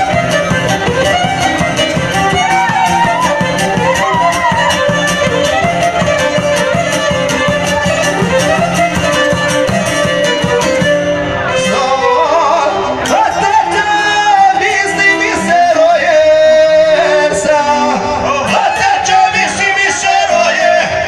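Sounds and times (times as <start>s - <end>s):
plucked string instrument: 0.0s - 20.0s
violin: 0.0s - 21.0s
man singing: 11.5s - 21.0s.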